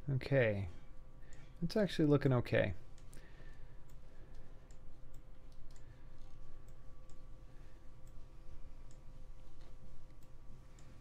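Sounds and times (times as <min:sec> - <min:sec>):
thin faint steady tone: 0:00.0 - 0:11.0
computer mouse clicks: 0:02.9 - 0:07.2, 0:08.0 - 0:11.0.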